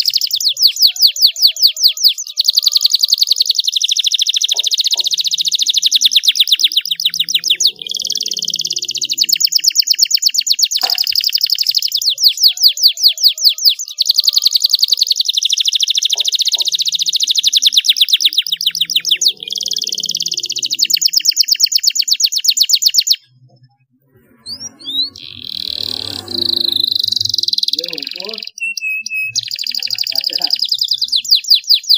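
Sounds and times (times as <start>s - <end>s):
canary singing trills: 0.0s - 31.9s
short bird chirps: 0.0s - 31.9s.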